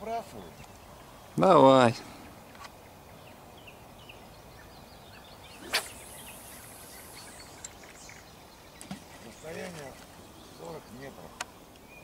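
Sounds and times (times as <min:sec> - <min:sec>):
small birds chirping: 0:00.0 - 0:12.0
fishing rod swish: 0:05.6 - 0:07.4
line hissing off spinning reel: 0:05.6 - 0:07.9.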